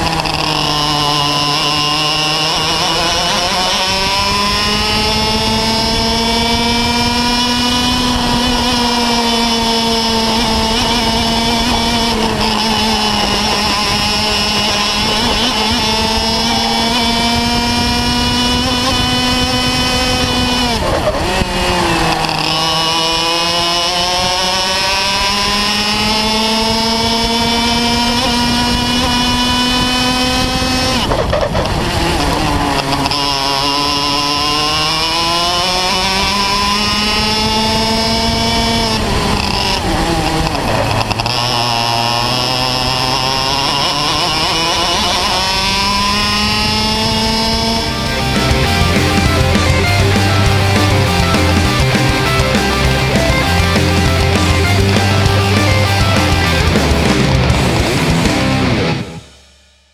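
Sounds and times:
kart engine buzzing: 0.0s - 59.5s.

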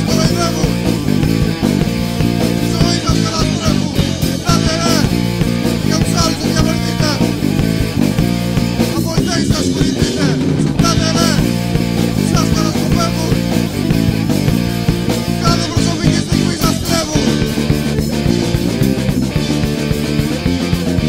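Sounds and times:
drums beating: 0.0s - 21.0s
electric guitar: 0.0s - 21.0s.

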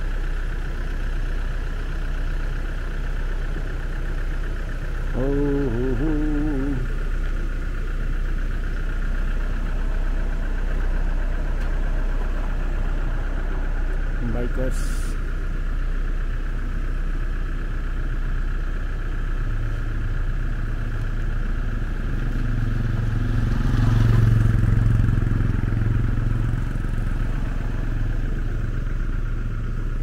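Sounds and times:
steady engine hum: 0.0s - 30.0s
motorcycle passing: 5.2s - 6.8s, 22.6s - 28.8s.

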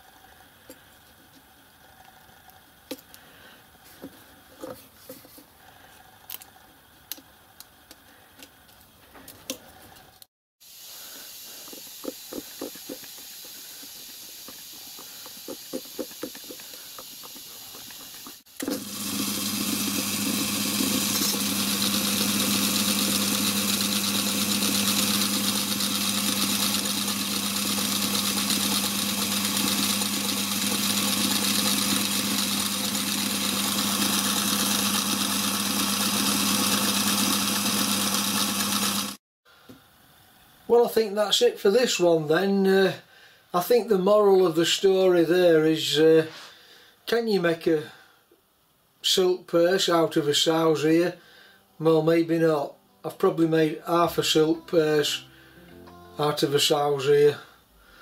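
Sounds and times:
micro lathe humming: 10.9s - 39.2s.

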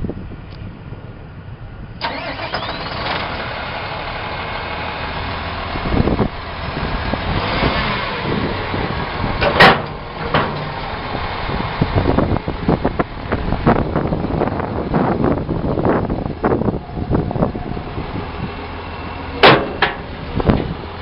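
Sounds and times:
diesel engine starting and running: 0.0s - 21.0s
thump: 19.4s - 20.0s.

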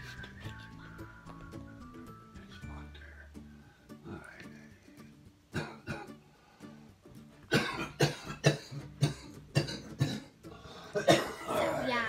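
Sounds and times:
soft background music: 0.0s - 12.0s
person coughing: 5.6s - 6.1s, 7.5s - 10.3s, 10.9s - 11.8s.

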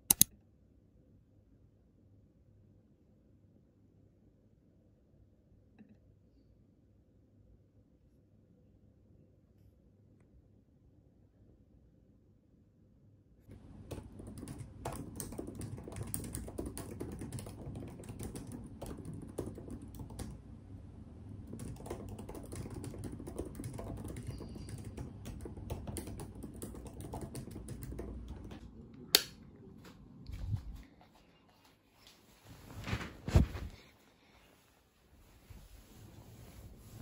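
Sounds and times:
laptop keyboard typing: 0.0s - 0.3s, 13.5s - 20.4s, 21.4s - 29.3s
light switch click: 0.0s - 0.3s, 29.1s - 29.4s.

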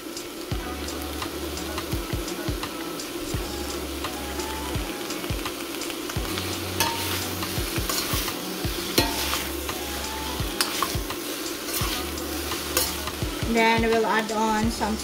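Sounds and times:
noodles sizzling in a pan: 0.0s - 15.0s
utensils clicking against pan: 5.2s - 14.8s.

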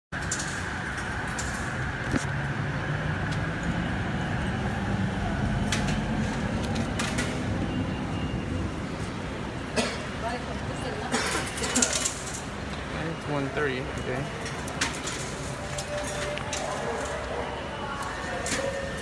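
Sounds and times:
rail station rumble and hum: 0.2s - 19.0s.

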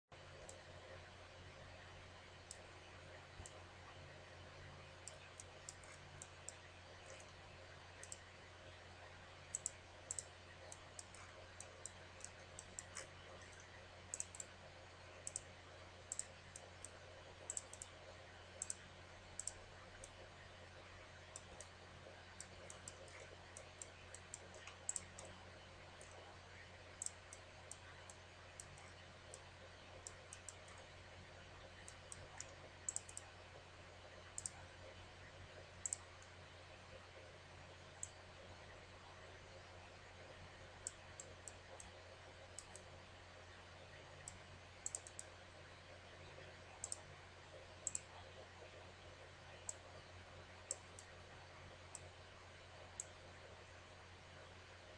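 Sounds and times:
faint steady low hum: 0.1s - 54.9s
computer mouse clicking: 0.3s - 0.7s, 2.4s - 2.7s, 3.3s - 3.6s, 4.8s - 8.3s, 9.4s - 14.6s, 15.2s - 33.4s, 34.3s - 34.7s, 35.8s - 36.4s, 37.9s - 38.2s, 39.0s - 43.0s, 43.9s - 48.8s, 49.6s - 50.0s, 50.7s - 51.2s, 51.9s - 52.2s, 52.8s - 53.2s.

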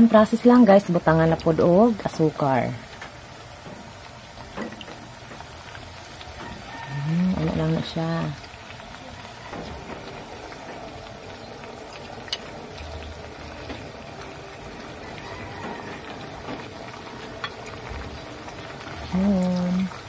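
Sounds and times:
oil sizzling and bubbling: 0.0s - 20.0s.

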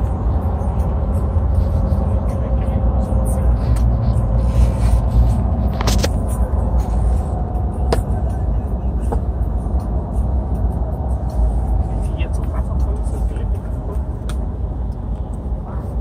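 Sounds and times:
road and engine rumble: 0.0s - 16.0s.

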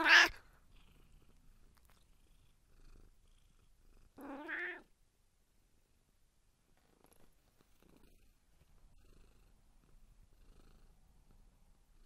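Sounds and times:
cat meowing: 0.0s - 0.4s, 4.2s - 4.9s.

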